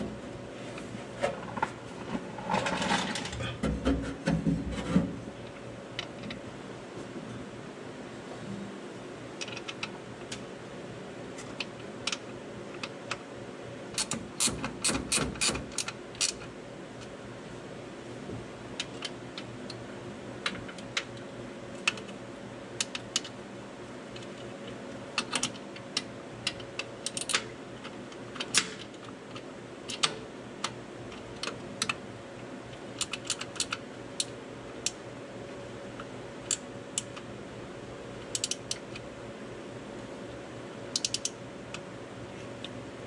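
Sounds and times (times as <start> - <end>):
steady low hum: 0.0 - 43.0
wrench clicking on metal bolts: 41.0 - 41.3.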